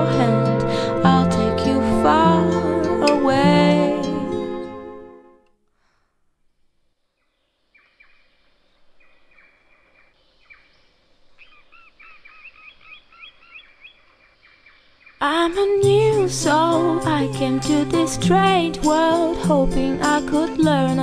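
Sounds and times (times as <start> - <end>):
music with singing: 0.0 - 5.0, 15.2 - 21.0
birds chirping: 7.2 - 15.7.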